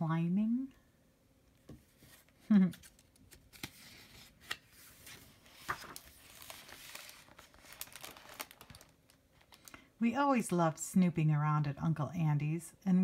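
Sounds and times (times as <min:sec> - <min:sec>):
paper page rustling: 0:01.9 - 0:09.7.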